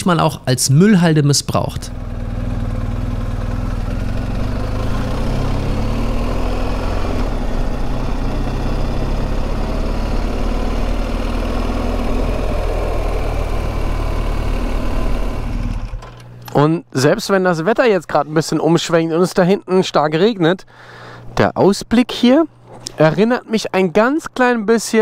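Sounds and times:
motorcycle engine running: 0:01.7 - 0:16.2
wind and tyre noise: 0:02.0 - 0:16.0.

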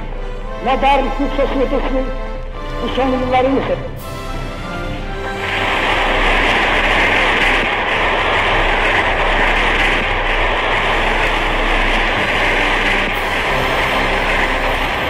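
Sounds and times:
loud rushing noise: 0:03.1 - 0:15.0.

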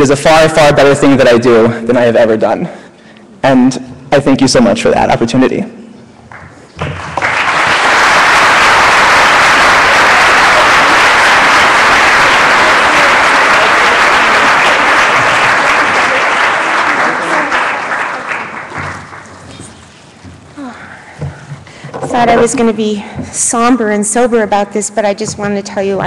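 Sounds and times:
audience applauding: 0:06.3 - 0:20.0.

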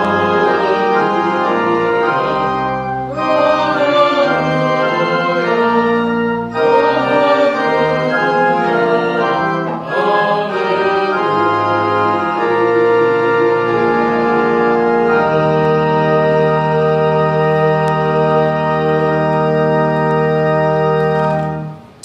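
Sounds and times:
church organ playing hymn: 0:00.0 - 0:22.0.

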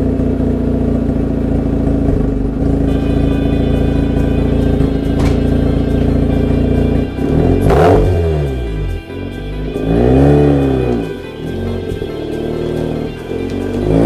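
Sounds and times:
rotary engine idling and revving: 0:00.0 - 0:14.0
sharp engine crack: 0:04.7 - 0:06.3.

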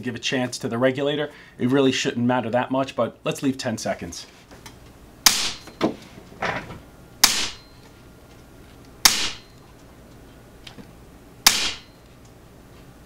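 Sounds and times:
air rifle shots: 0:05.2 - 0:05.7, 0:07.2 - 0:07.7, 0:09.0 - 0:09.5, 0:11.4 - 0:12.0.

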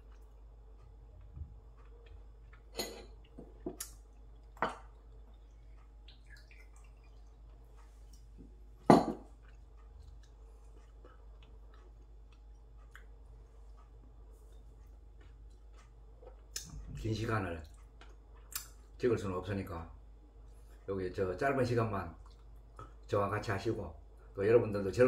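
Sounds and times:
glass knocking on wooden table: 0:08.9 - 0:09.3.

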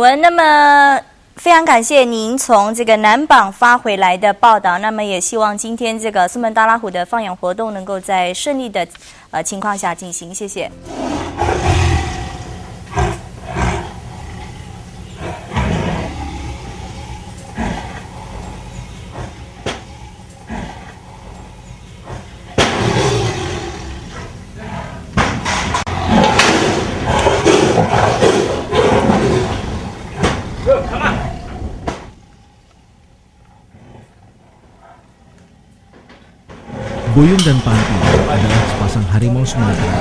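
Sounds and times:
tiger growling and roaring: 0:10.8 - 0:40.0.

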